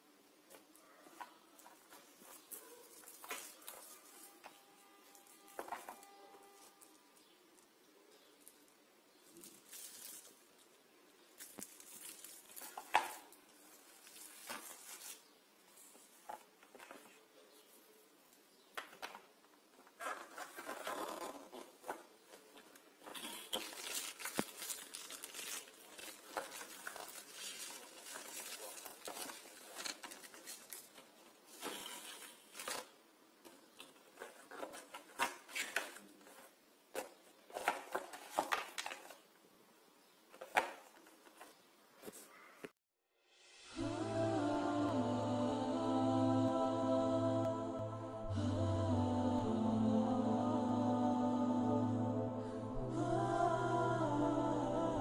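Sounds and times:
plastic wrap crinkling: 1.6 - 7.3, 9.2 - 15.4, 20.0 - 33.0.

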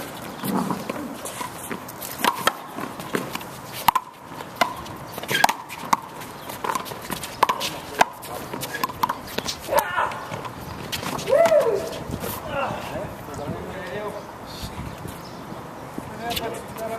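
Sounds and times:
footsteps scuffing on concrete: 0.0 - 12.5.

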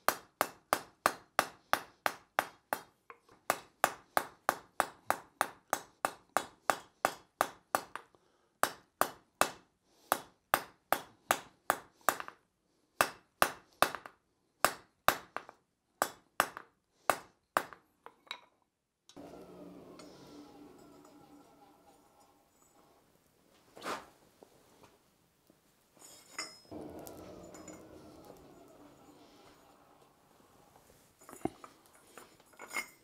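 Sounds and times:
hammer clanging on anvil: 19.2 - 22.4, 26.4 - 30.1.

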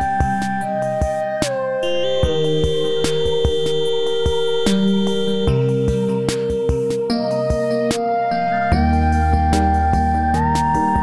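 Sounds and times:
held synthesizer tones: 1.8 - 6.3
steady beat: 1.8 - 7.7.

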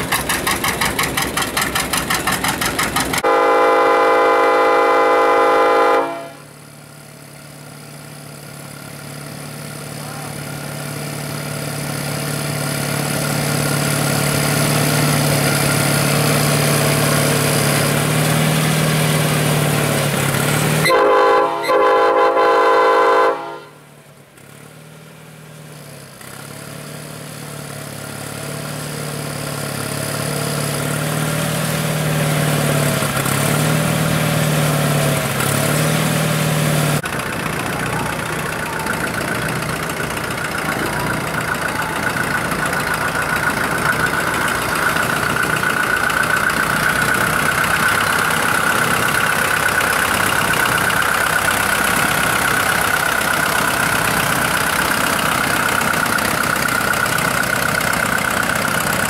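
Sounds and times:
engine humming: 0.0 - 59.0
horn blasts: 3.2 - 6.6, 20.8 - 23.9.

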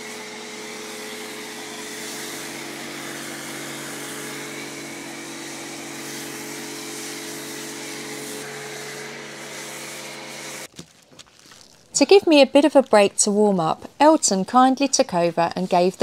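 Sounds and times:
pressure washer motor humming: 0.0 - 10.7.

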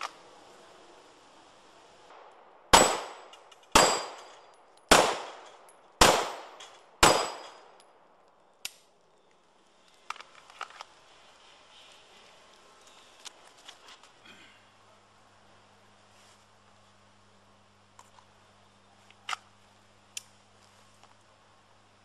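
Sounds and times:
pistol shots: 2.1 - 7.8
bullet ringing off steel plate: 2.2 - 7.9.

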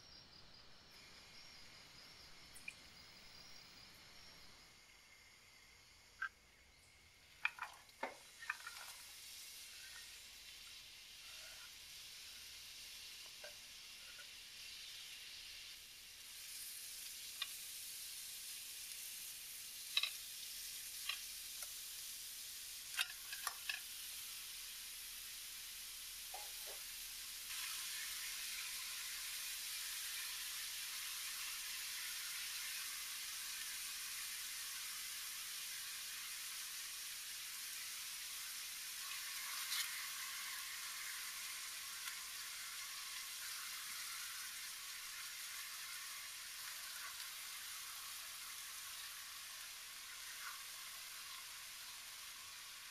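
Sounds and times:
vegetables sizzling in oil: 0.0 - 52.9
oil popping: 7.3 - 9.1.

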